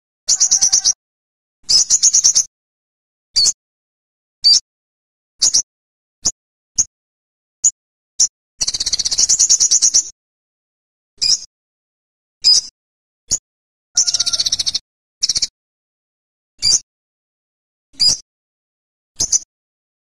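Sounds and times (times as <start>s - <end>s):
bird fast trills: 0.3s - 1.0s, 14.0s - 15.5s
bird high chips: 14.0s - 14.8s.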